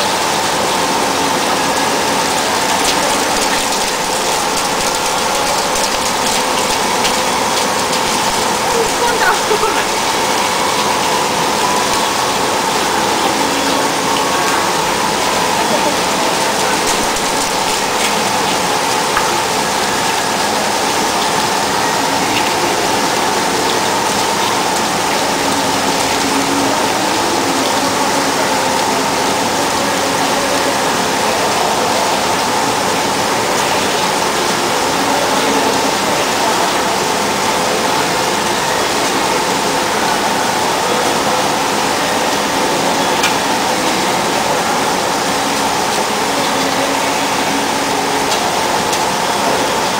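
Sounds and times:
steady machine tone: 0.0s - 30.5s
coolant and cutting hiss: 0.0s - 49.9s.

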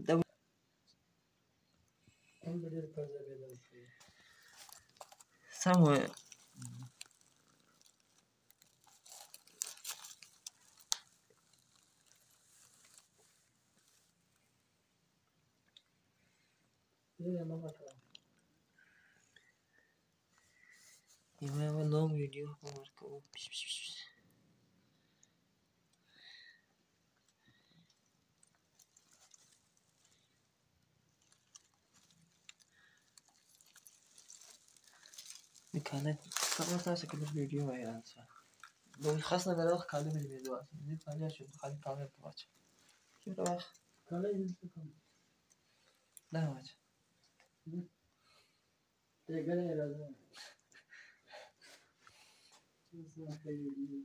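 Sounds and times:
straw rustling: 3.9s - 14.2s, 27.5s - 30.5s, 31.1s - 44.0s.

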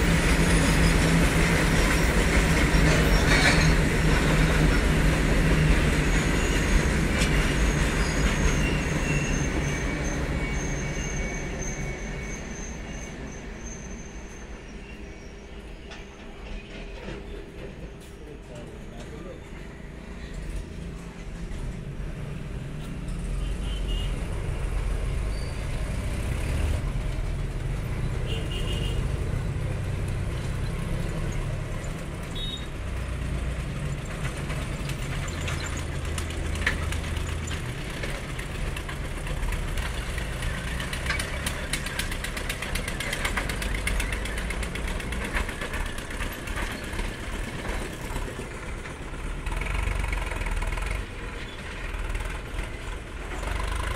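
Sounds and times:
tractor engines running: 0.0s - 10.5s, 24.4s - 53.9s.

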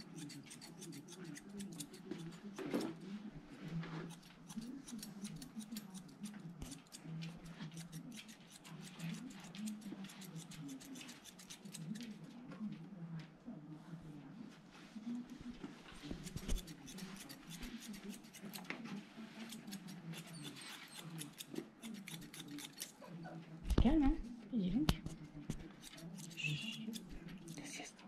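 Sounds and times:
grooming scissors snipping hair: 0.0s - 3.0s, 4.0s - 12.4s, 16.0s - 23.0s, 25.0s - 27.9s.

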